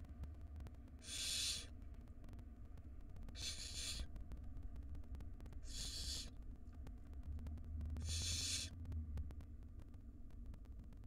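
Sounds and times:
owl nestlings hissing calls: 1.0s - 1.7s, 3.4s - 4.0s, 5.6s - 6.3s, 8.0s - 8.7s.

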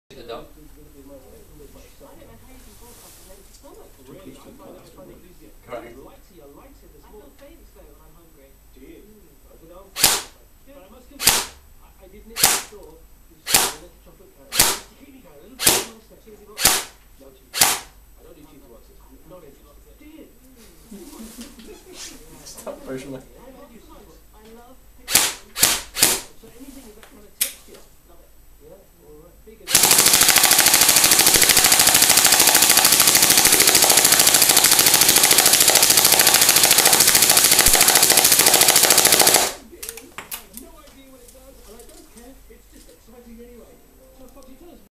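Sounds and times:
airsoft gun firing: 10.0s - 10.4s, 11.2s - 11.6s, 12.4s - 12.8s, 13.5s - 13.8s, 14.5s - 14.9s, 15.6s - 16.0s, 16.6s - 17.9s, 25.1s - 26.3s, 29.7s - 39.6s.

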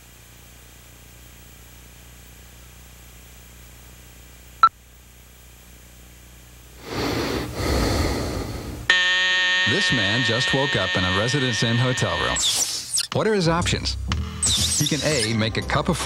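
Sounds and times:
tape hiss and hum: 0.0s - 7.6s, 9.5s - 12.6s
man snoring: 6.8s - 8.9s.

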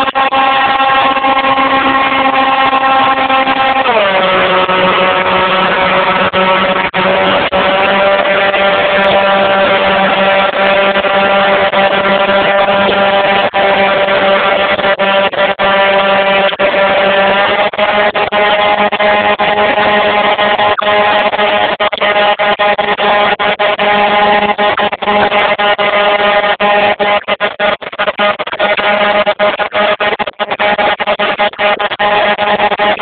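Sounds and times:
model airplane motor and propeller: 0.0s - 33.0s.

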